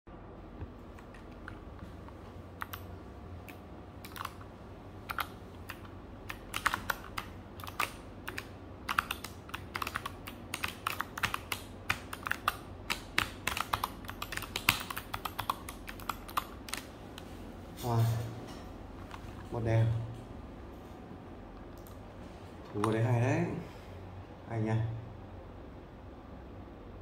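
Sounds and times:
mechanical keyboard typing: 2.6 - 4.5, 5.1 - 16.9.

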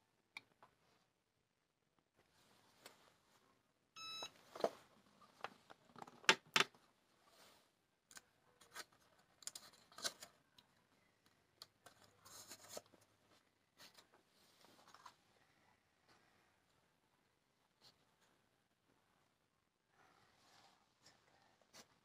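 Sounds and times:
electronic beep: 4.0 - 4.3.

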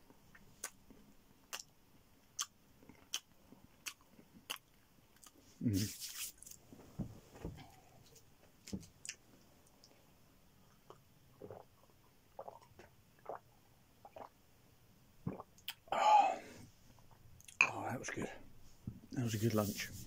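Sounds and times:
person gulping water: 10.9 - 14.4, 15.2 - 16.4.

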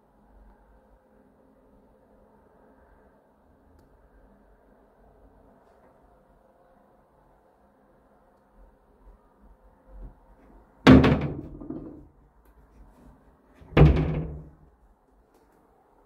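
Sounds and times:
wooden cabinet doors slamming: 10.9 - 12.1, 13.6 - 14.6.

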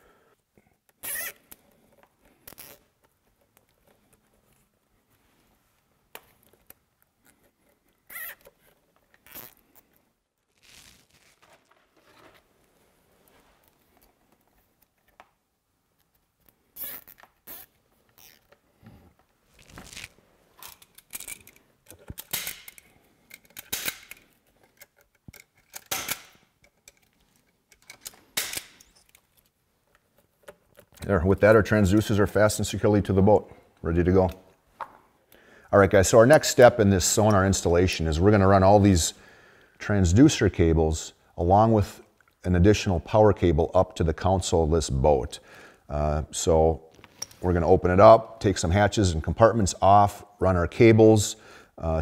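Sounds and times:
zip ties zipping and clicking: 0.9 - 1.7, 2.4 - 3.2, 7.1 - 12.2, 16.0 - 18.6, 19.5 - 22.8.

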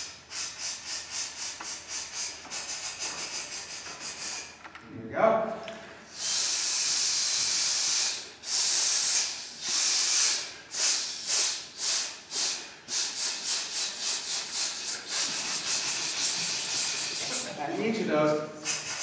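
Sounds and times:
men's chorus hissing: 6.1 - 19.0.

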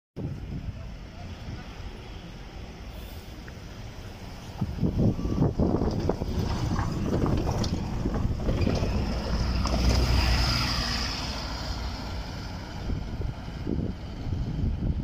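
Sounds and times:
bus engine rumble: 0.2 - 15.0
wind buffeting microphone: 4.2 - 15.0.

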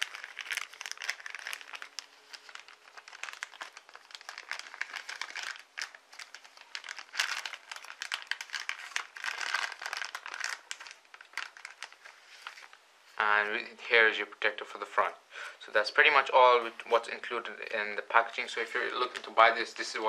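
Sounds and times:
plastic film crinkling: 0.0 - 13.6, 18.0 - 20.0.

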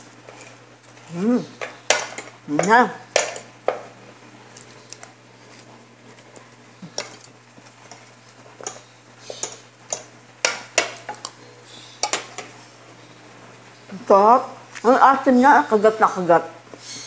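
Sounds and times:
cutlery clinking on plate: 6.9 - 7.3.

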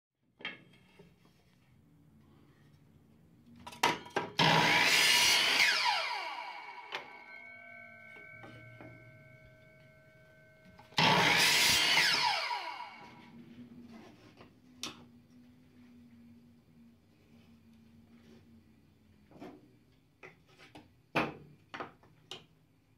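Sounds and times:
miter saw cutting wood: 4.4 - 7.6, 10.9 - 13.4.

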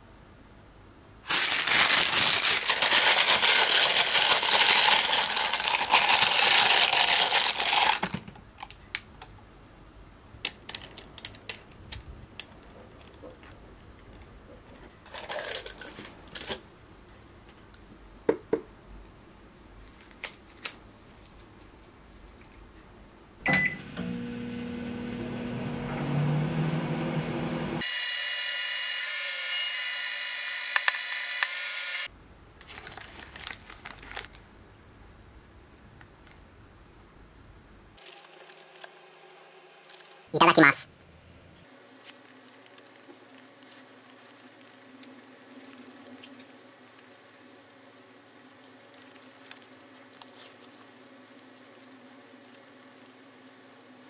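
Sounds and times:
microwave oven humming: 23.4 - 28.9.

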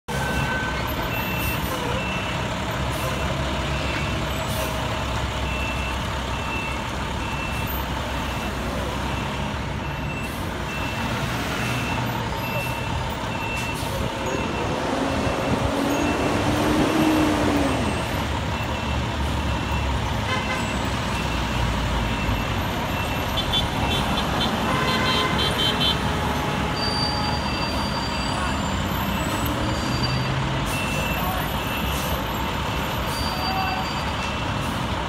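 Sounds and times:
street traffic: 0.0 - 35.0.

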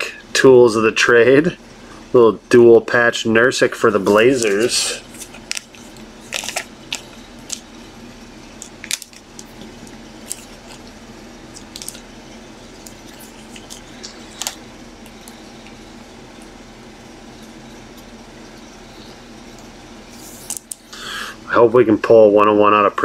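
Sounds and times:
faint steady hum: 0.0 - 23.0
wrapper rustling: 4.0 - 7.9, 8.5 - 14.7.

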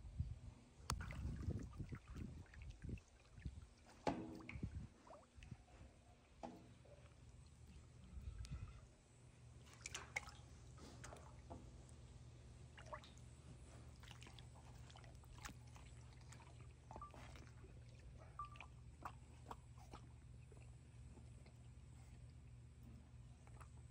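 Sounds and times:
water drips and splashes: 0.9 - 5.6, 9.6 - 12.0, 12.6 - 21.8.

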